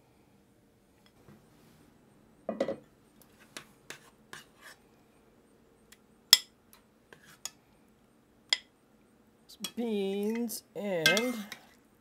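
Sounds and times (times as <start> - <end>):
utensil scraping: 3.3 - 4.8, 7.1 - 7.6
metal clinking on a dish: 11.1 - 11.6.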